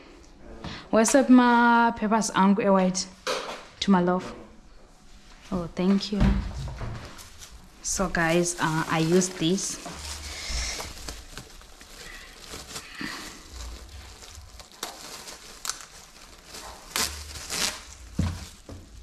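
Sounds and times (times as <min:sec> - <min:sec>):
plastic bag rustling and crackling: 0:06.6 - 0:19.0.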